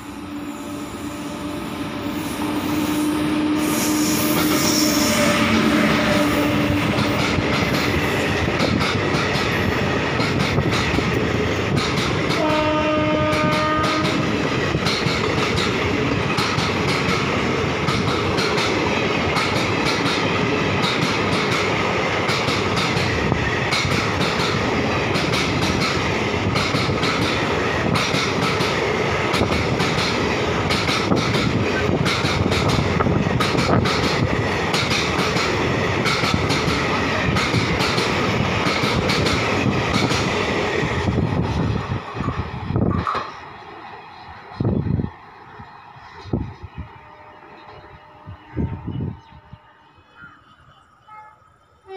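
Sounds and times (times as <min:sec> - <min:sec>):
train horn: 0:00.0 - 0:07.2, 0:12.3 - 0:14.4, 0:46.3 - 0:51.9
train wheels rumbling on rails: 0:00.0 - 0:49.7
wheels clicking over rail joints: 0:13.3 - 0:45.2.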